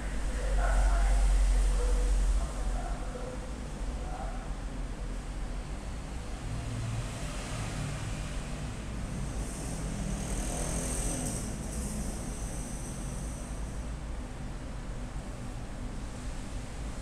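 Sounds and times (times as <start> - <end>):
low background rumble: 0.0 - 4.4.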